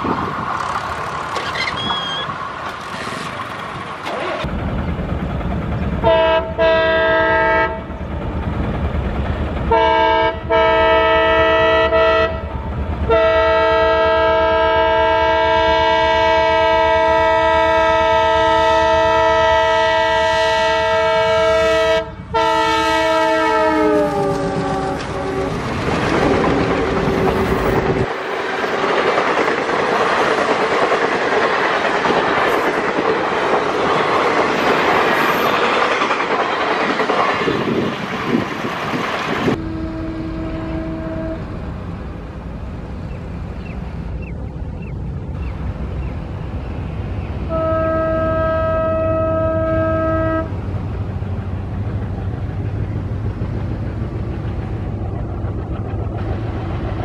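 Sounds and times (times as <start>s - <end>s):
train wheels clattering on rail: 0.0s - 21.4s, 22.2s - 39.6s, 50.4s - 57.0s
locomotive engine rumble: 0.0s - 57.0s
diesel locomotive horn: 6.0s - 8.0s, 9.7s - 25.7s, 39.4s - 41.6s, 47.4s - 50.6s.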